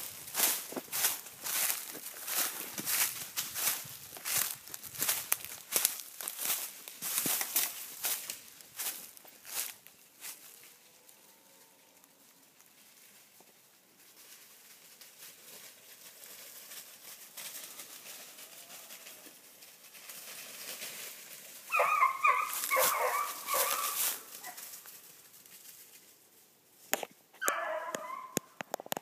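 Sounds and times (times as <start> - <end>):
beagles baying: 21.6 - 25.0, 27.4 - 28.6.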